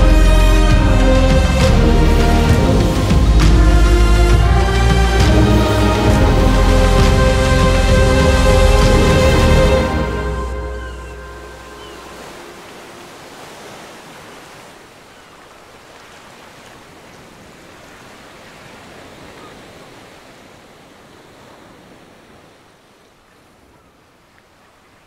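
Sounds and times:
music track: 0:00.0 - 0:13.3
waves washing onto beach: 0:00.0 - 0:25.0.

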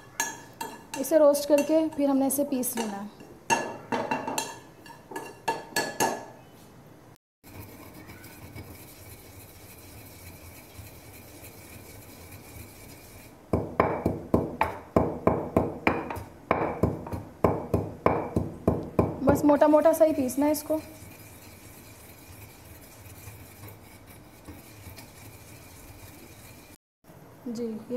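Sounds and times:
metal spoon scraping seeds in pan: 0:07.4 - 0:13.4, 0:20.0 - 0:26.8
pestle pounding in stone mortar: 0:13.5 - 0:19.3.

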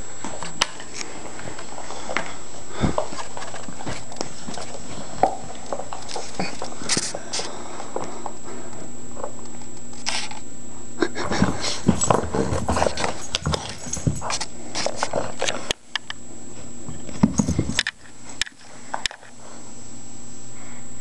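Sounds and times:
dog chewing toys: 0:02.9 - 0:07.2, 0:11.4 - 0:16.1.

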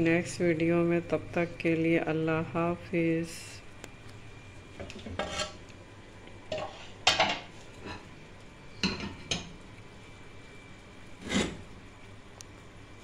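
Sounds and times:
dishes clattering on metal grates: 0:04.8 - 0:05.6, 0:06.5 - 0:08.1, 0:08.8 - 0:09.5.

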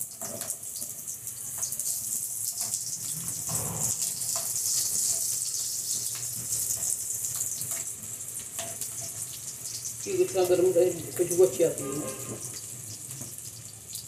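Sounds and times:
garlic sizzling in hot oil: 0:00.0 - 0:14.0
spatula scraping and tapping pan: 0:02.5 - 0:10.0.

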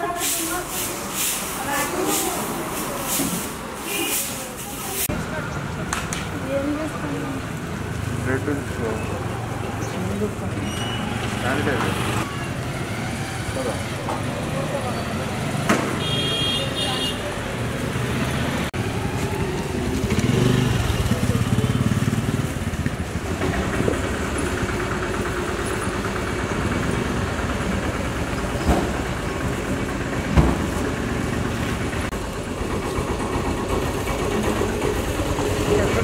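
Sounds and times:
street traffic: 0:00.0 - 0:36.0
vehicle engine running close by: 0:17.7 - 0:36.0.

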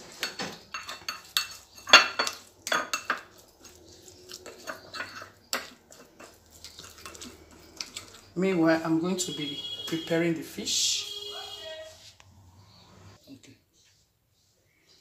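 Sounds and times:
metal spoon clinking glass bowl: 0:00.2 - 0:08.3.

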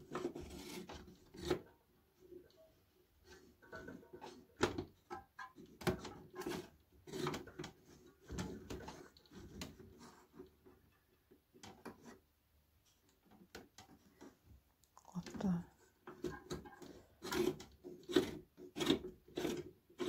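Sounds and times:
plastic scrapes and clicks: 0:03.2 - 0:10.8, 0:16.0 - 0:20.0.

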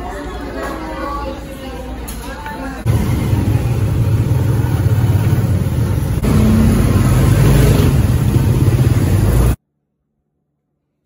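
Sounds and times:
road noise: 0:02.8 - 0:09.6
motorcycle engine running: 0:02.9 - 0:09.6.

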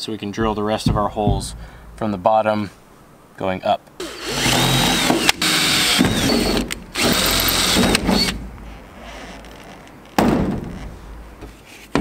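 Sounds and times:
sharp knock: 0:00.4 - 0:02.2
drill boring through sheet metal: 0:04.0 - 0:08.4.

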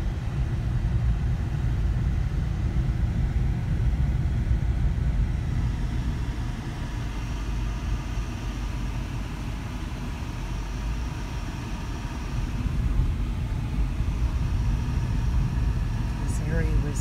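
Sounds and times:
road noise inside car: 0:00.0 - 0:17.0
vehicle engine rumble: 0:00.0 - 0:17.0.

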